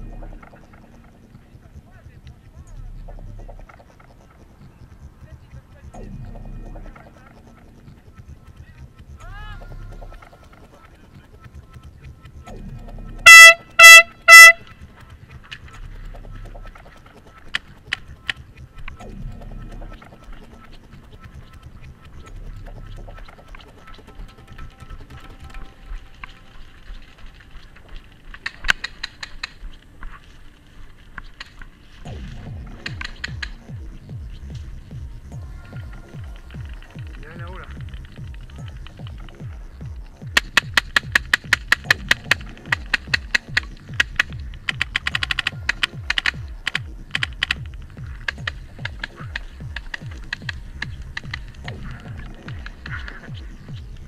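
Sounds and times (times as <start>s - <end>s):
electronic music with kick drum: 0.0s - 27.8s, 32.0s - 54.0s
sharp clicks: 0.0s - 54.0s
paintball marker shots: 40.3s - 53.3s.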